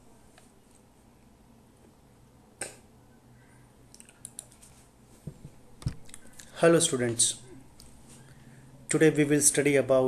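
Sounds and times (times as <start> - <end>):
faint steady hum: 0.0 - 10.0
computer mouse clicks: 3.9 - 4.6.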